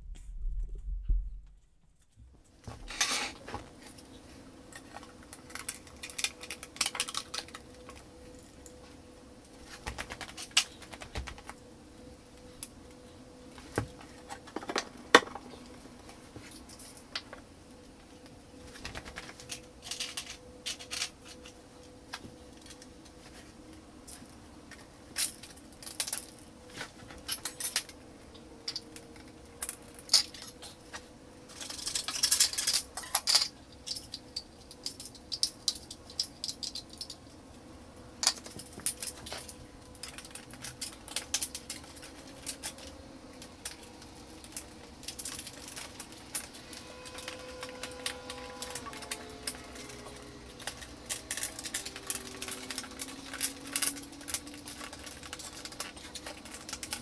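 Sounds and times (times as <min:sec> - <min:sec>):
metal clips clinking: 0:38.2 - 0:57.0.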